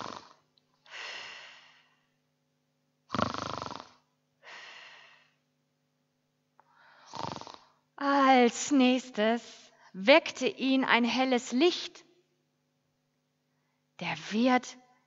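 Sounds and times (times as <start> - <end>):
person snoring into microphone: 0.0 - 0.4, 3.1 - 4.0, 7.0 - 7.8.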